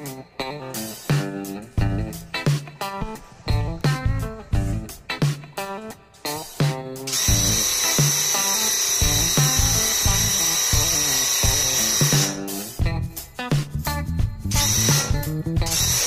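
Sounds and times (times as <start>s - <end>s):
guitar background music: 0.0s - 16.0s
paint sprayer hissing: 6.4s - 12.8s, 14.5s - 16.0s.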